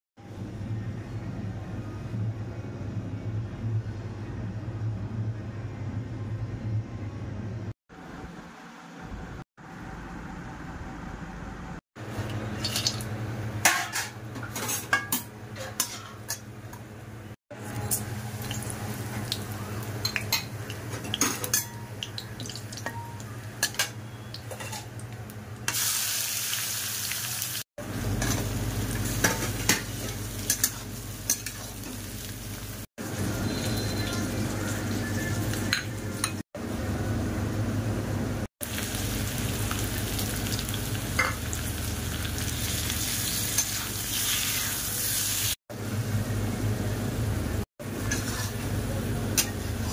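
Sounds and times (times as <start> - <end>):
metal spatula scraping a pan: 15.6 - 16.4, 48.0 - 48.7
oil sizzling: 17.5 - 36.4, 38.6 - 45.6.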